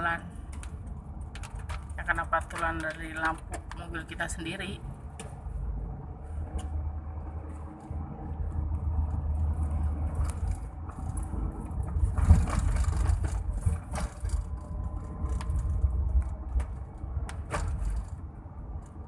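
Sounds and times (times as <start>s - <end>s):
engine and road rumble: 0.0s - 19.0s
knocks and rattles: 10.2s - 18.3s.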